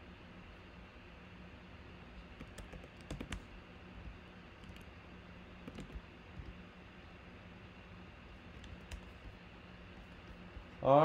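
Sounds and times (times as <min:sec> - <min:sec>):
computer keyboard typing: 0:02.3 - 0:03.5, 0:04.6 - 0:04.9, 0:05.6 - 0:06.6, 0:08.5 - 0:09.4.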